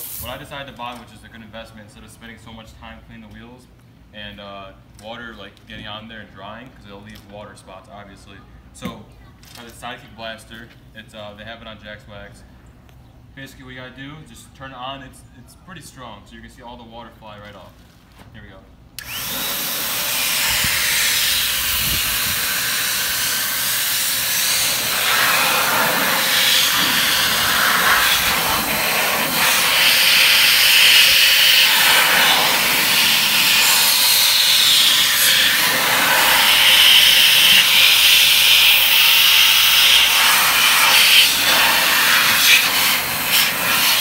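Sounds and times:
car dryer blasting air: 19.0s - 44.0s.

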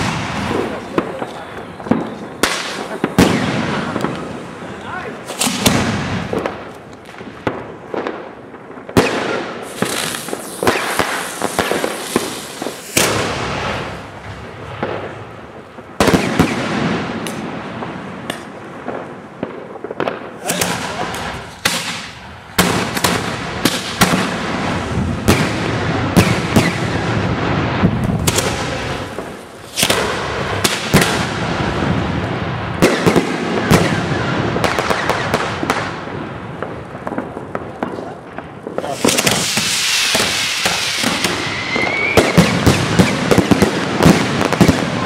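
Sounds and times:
fireworks banging and crackling: 0.0s - 45.0s
firework hiss with rising whistle: 8.9s - 14.2s, 38.8s - 44.9s.

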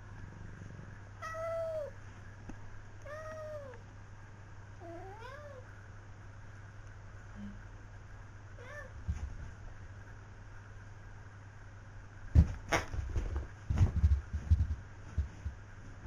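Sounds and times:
steady low hum: 0.0s - 16.0s
cat meowing: 3.1s - 3.8s.

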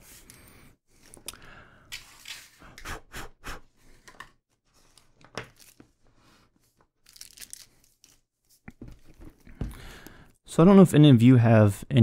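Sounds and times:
packaging rustling and tearing: 7.0s - 8.2s.

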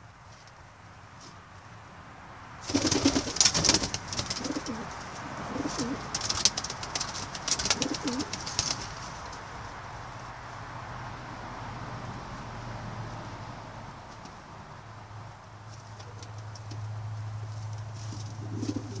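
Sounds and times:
pigeons cooing: 2.7s - 9.0s, 18.0s - 19.0s
clatter of clicks and rustling: 6.1s - 9.5s.

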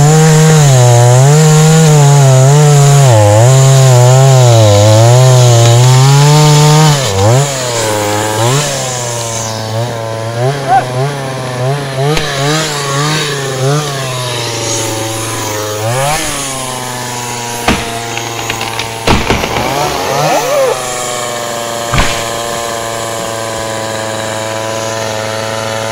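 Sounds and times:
chainsaw engine revving: 0.0s - 25.9s
tree cracking and thudding down: 17.6s - 23.4s.

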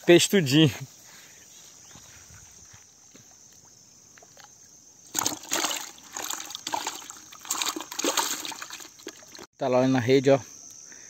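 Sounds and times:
faint insect hum: 0.0s - 11.0s
water sloshing and splashing: 4.2s - 9.5s.

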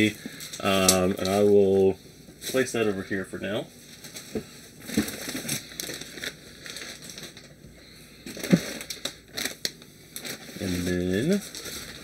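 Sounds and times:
packaging rustling and crinkling: 0.0s - 12.0s.

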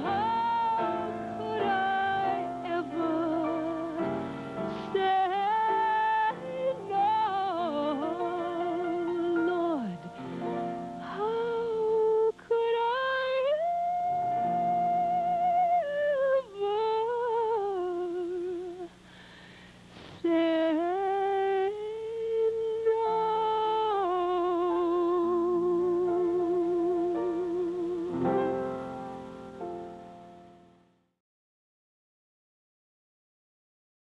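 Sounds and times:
woman singing with vibrato: 0.0s - 19.1s, 20.0s - 28.6s
instrumental accompaniment: 25.6s - 30.8s.

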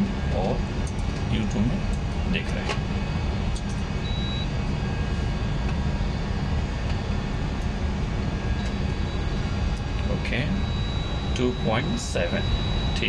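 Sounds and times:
machinery rumbling hum: 0.0s - 13.0s
short high beep: 4.0s - 4.5s, 10.0s - 13.0s.

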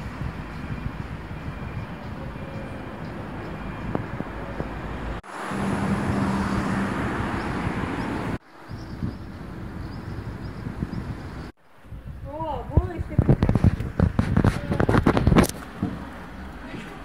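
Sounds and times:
passing traffic engine hum: 0.0s - 11.5s.

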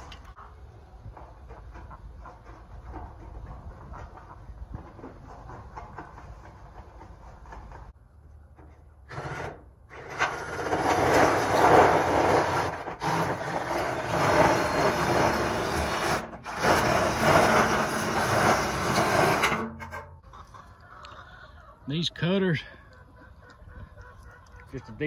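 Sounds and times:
drill shear cutting tin: 9.1s - 20.1s.

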